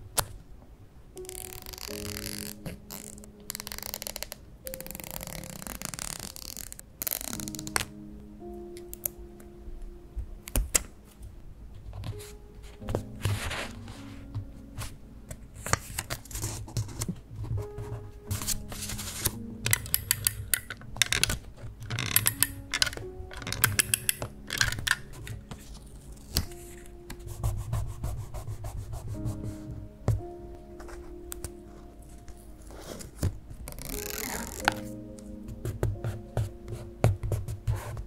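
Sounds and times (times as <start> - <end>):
soft background music: 0.0 - 38.0
scratching on paper: 15.6 - 20.0, 21.0 - 29.7, 35.6 - 38.0.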